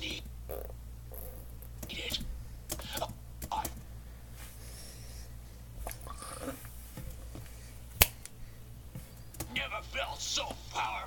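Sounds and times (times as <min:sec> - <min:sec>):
low steady hum: 0:00.0 - 0:11.0
faint breathing and mouth sounds: 0:00.5 - 0:09.5.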